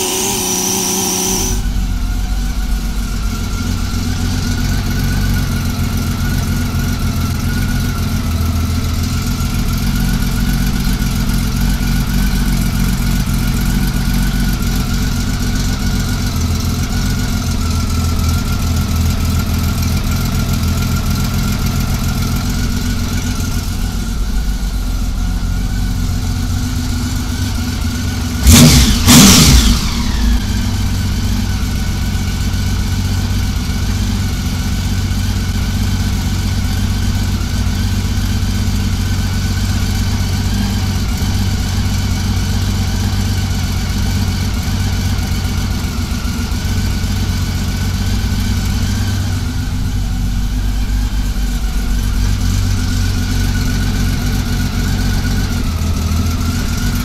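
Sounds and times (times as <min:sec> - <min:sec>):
loud engine burst: 0:00.0 - 0:04.6, 0:28.3 - 0:32.2
motorcycle engine idling: 0:00.0 - 0:57.0.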